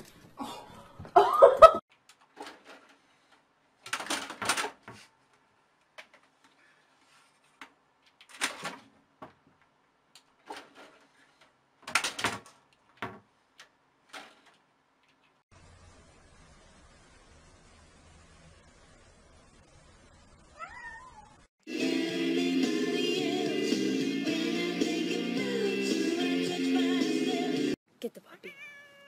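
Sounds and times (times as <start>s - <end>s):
cat crying: 20.6s - 21.5s, 28.5s - 29.0s.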